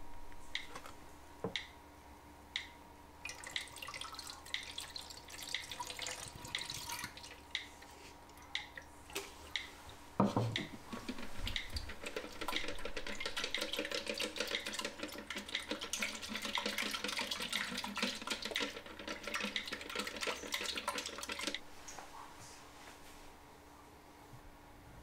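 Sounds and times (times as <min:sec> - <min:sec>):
liquid sloshing in plastic tank: 0:03.3 - 0:21.6.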